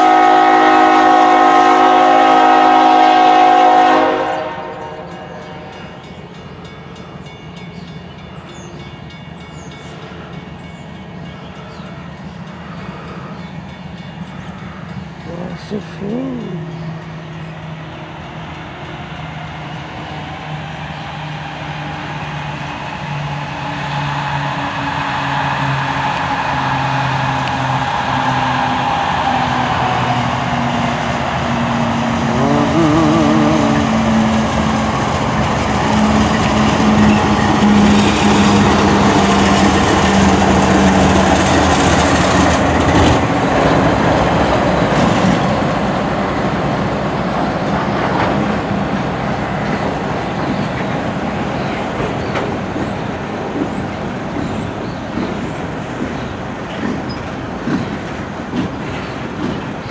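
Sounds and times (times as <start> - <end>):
diesel locomotive engines droning: 0.0 - 59.9
train wheels clicking over rail joints: 34.3 - 46.7, 47.4 - 59.9.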